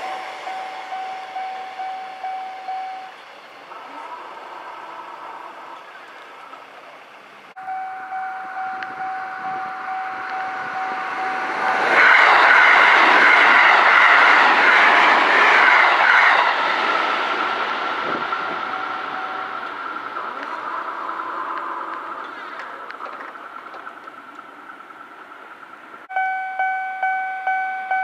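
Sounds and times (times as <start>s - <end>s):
crossing warning bell ringing: 0.0s - 6.2s, 7.6s - 12.7s, 18.0s - 22.4s, 26.1s - 28.0s
train wheels clattering over rails: 8.6s - 26.1s.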